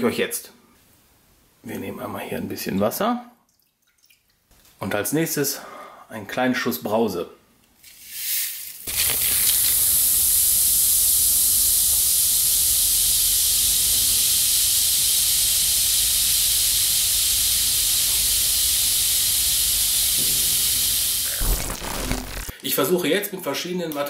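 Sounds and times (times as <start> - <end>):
soft drink fizzing in water: 8.9 - 22.5.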